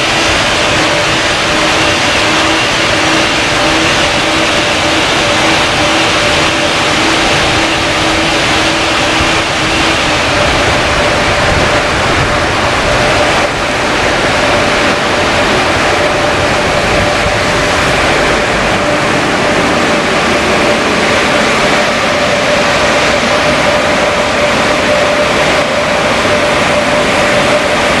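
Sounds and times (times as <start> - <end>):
car wash blower dryers: 0.0 - 28.0.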